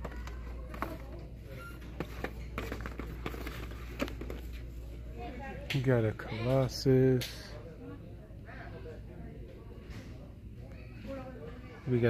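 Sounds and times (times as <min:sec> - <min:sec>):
plastic packages clacking and rustling: 0:01.9 - 0:04.6.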